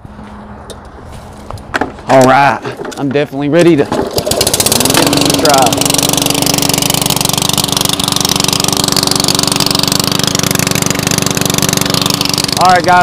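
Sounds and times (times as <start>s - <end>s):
lawn mower engine running: 3.6s - 13.0s.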